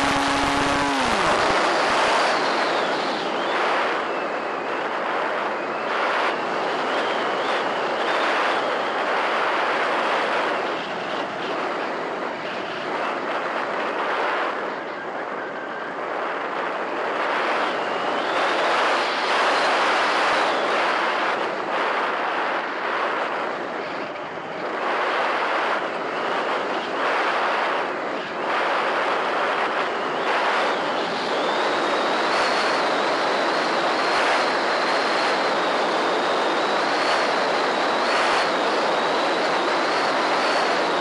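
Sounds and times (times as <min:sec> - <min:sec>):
thin high whine: 0:00.0 - 0:12.0
air rushing over glider: 0:00.0 - 0:14.8, 0:15.4 - 0:41.0.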